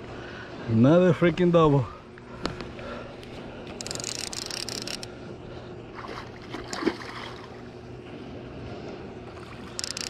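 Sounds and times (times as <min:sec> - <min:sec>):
steady low hum: 0:00.0 - 0:10.0
fishing reel clicking: 0:03.7 - 0:05.1, 0:09.7 - 0:10.0.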